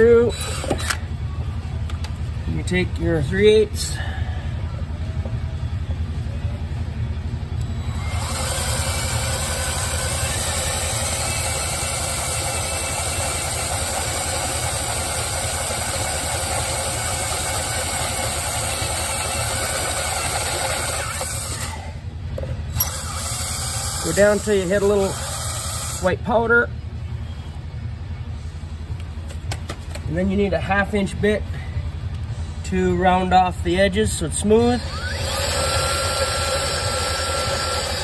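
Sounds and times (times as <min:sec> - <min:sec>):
steady low hum: 0:00.0 - 0:19.8, 0:21.0 - 0:38.0
electric drill boring through rubber: 0:00.3 - 0:01.0, 0:07.8 - 0:22.0, 0:22.7 - 0:26.1, 0:34.8 - 0:38.0.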